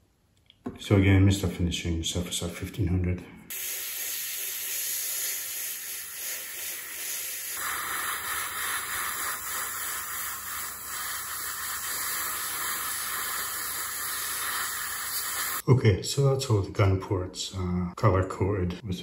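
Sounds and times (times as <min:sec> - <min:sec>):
airbrush spraying paint: 0:03.5 - 0:15.6.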